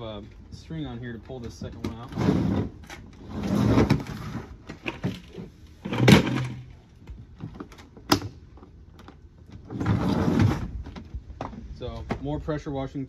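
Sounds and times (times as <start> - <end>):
plastic bin scraping and sliding: 1.6 - 6.6, 9.7 - 10.9.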